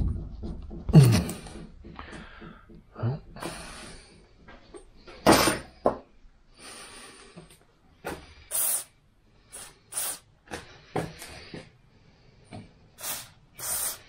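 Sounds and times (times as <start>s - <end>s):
aerosol spray hissing bursts: 8.5s - 10.3s, 13.0s - 14.0s.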